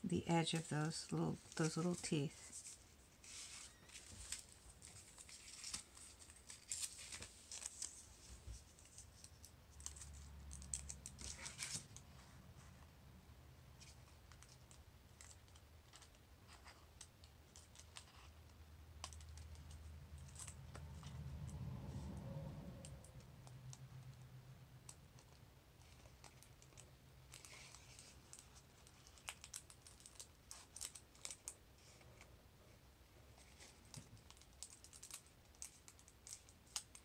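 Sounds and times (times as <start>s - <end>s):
paper crinkling in hands: 0.4s - 12.2s, 25.2s - 32.3s.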